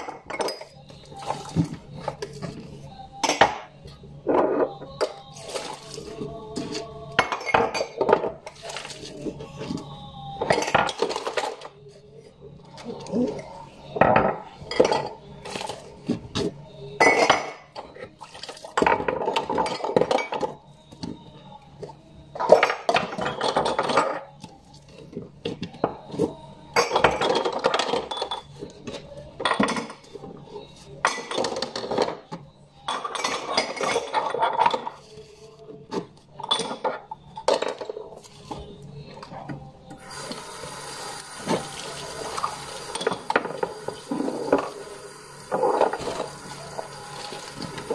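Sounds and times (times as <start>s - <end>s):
plates and cutlery clattering: 22.4s - 24.3s, 31.0s - 32.2s, 32.8s - 35.1s, 36.4s - 38.1s.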